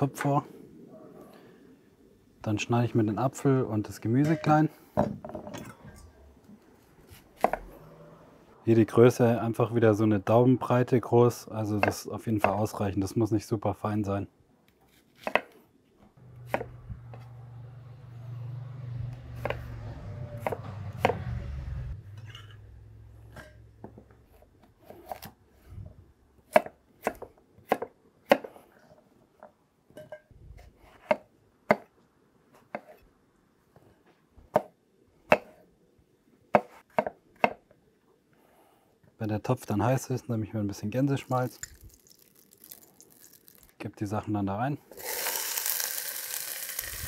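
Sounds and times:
knife chopping on wooden board: 16.5 - 16.7, 35.3 - 35.6.

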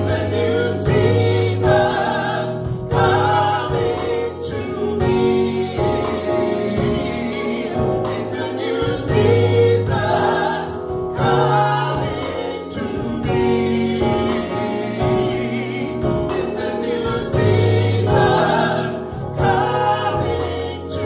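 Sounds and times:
drum kit: 0.0 - 21.0
keyboard: 0.0 - 21.0
steady cymbal beat: 0.0 - 21.0
vocalists singing in harmony: 0.0 - 21.0.

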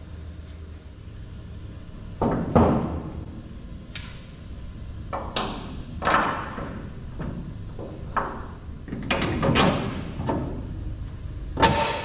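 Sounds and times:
metal parts knocking and clanking: 5.1 - 10.6.

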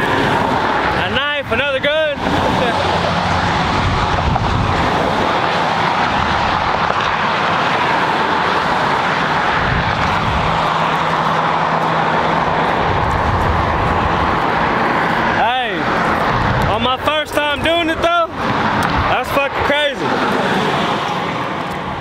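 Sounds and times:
passing motor traffic: 0.0 - 22.0
low engine hum: 2.2 - 17.2.

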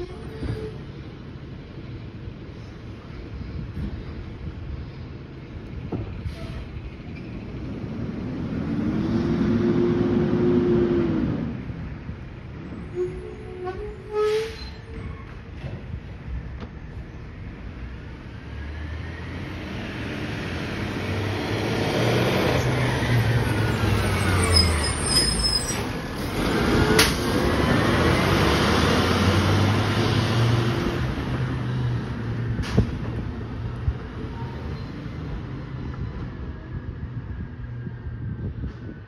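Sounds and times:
garbage truck driving past: 25.8 - 32.6.

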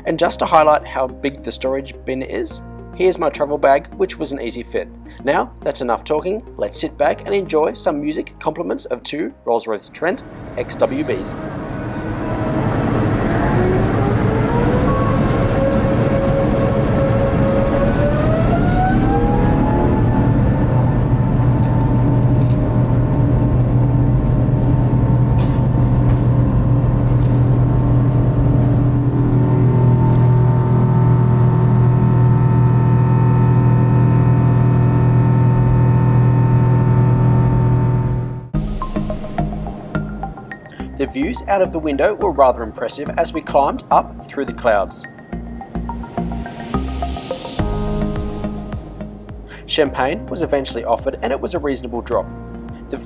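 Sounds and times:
jet engines spooling up: 10.2 - 41.0.

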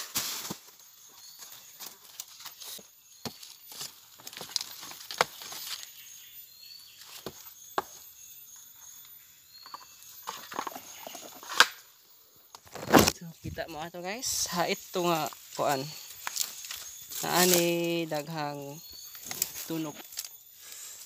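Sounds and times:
movement in undergrowth: 0.0 - 11.7, 12.6 - 21.0
insect drone: 0.0 - 21.0
bird chirps: 0.9 - 3.8, 4.4 - 12.5, 13.5 - 20.7.

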